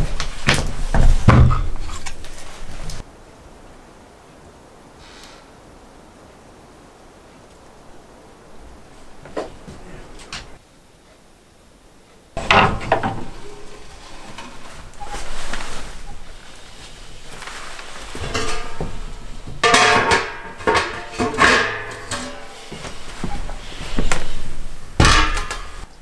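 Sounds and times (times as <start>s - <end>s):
wooden knocks: 12.4s - 16.3s
metal clanks of wood stove: 12.4s - 25.9s.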